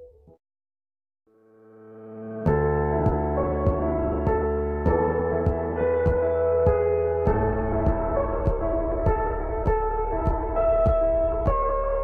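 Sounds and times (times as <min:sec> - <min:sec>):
soft steady beat: 0:02.5 - 0:12.0.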